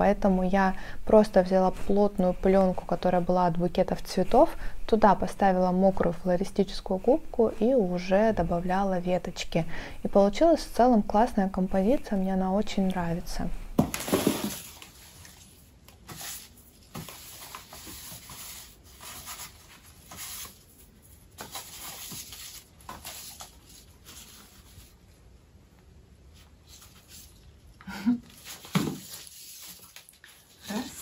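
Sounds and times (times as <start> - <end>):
packaging crinkling and rubbing: 13.9 - 25.0, 28.3 - 31.0.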